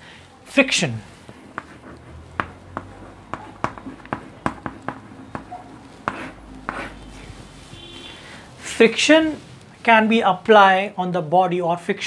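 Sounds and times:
chalk tapping and scratching: 1.0 - 9.7.

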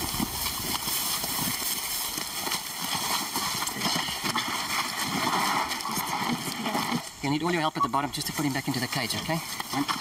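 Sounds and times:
footsteps and shuffling: 0.0 - 10.0.

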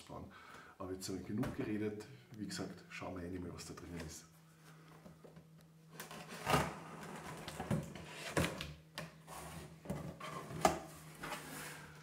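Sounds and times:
cardboard flaps scraping and rustling: 9.3 - 12.0.

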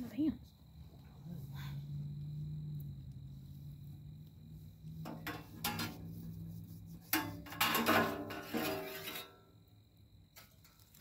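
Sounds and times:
sheet metal clanking and scraping: 5.0 - 6.2, 7.1 - 9.4.

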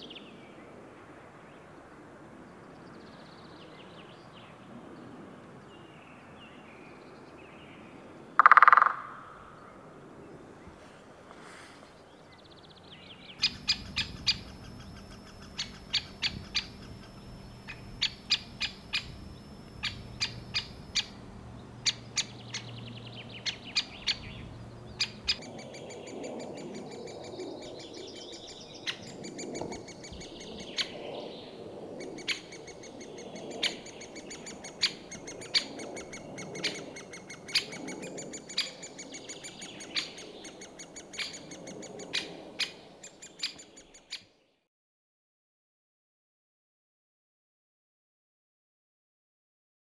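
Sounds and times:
woodpecker sharp kik call: 8.4 - 9.8, 13.4 - 25.9.

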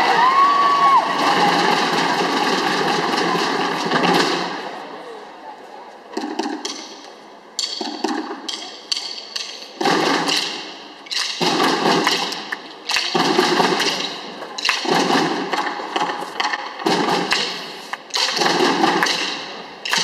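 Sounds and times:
drum corps playing: 0.0 - 4.7, 9.8 - 20.0.

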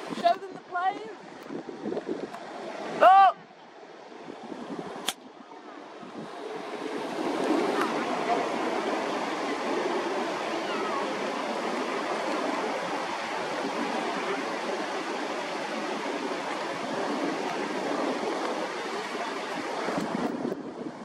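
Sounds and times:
river rushing over stones: 5.8 - 21.0.

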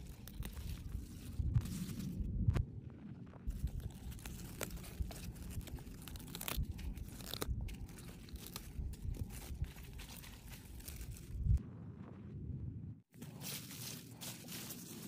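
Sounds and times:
stalks snapping and tearing: 0.0 - 2.1, 3.5 - 11.5
leaves crinkling: 0.0 - 2.3, 3.5 - 11.6, 13.2 - 15.0.

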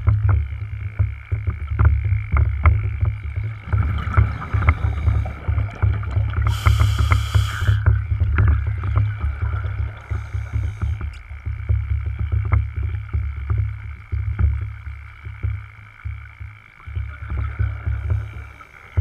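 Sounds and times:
underwater rumble of moving water: 0.0 - 19.0
scuba regulator bubbles hissing: 3.6 - 11.4.

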